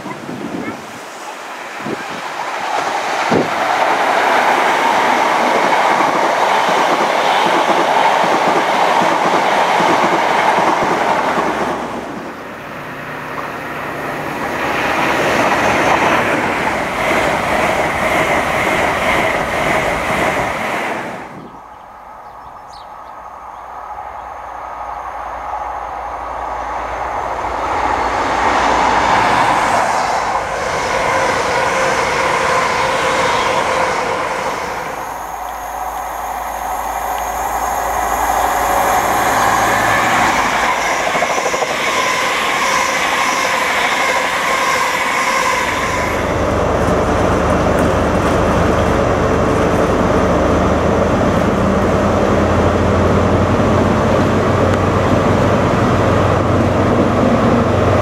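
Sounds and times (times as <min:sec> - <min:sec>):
diesel train passing: 0:00.0 - 0:58.0
train wheels clacking on rails: 0:01.9 - 0:12.4, 0:13.3 - 0:21.3, 0:27.8 - 0:50.3.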